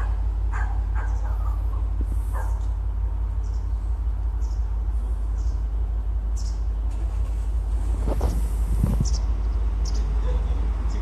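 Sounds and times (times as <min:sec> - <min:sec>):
dog barking: 0:00.0 - 0:02.7, 0:10.2 - 0:10.6
steady low rumble: 0:00.0 - 0:11.0.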